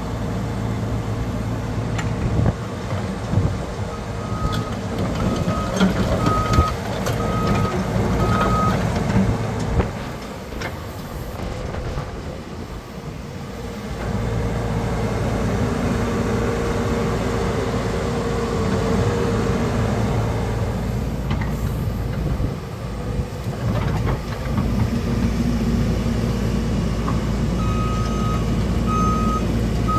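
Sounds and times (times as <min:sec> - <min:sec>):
excavator diesel engine running: 0:00.0 - 0:29.9.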